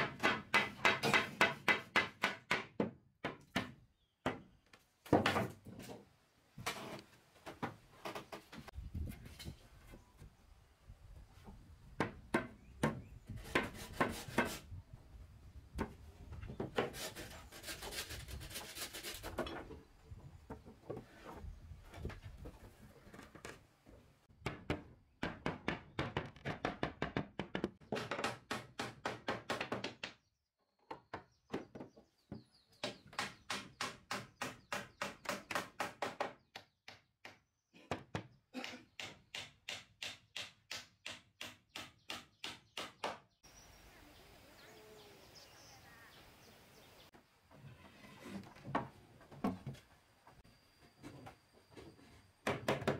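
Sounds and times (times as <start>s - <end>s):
rapid strikes on wood: 0.0s - 4.5s.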